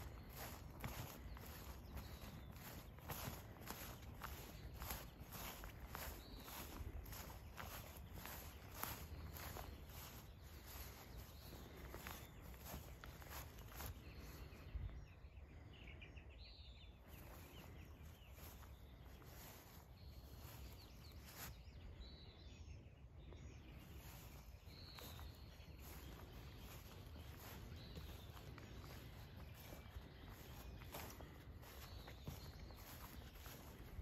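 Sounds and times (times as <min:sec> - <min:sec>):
bird chirps: 0:00.0 - 0:34.0.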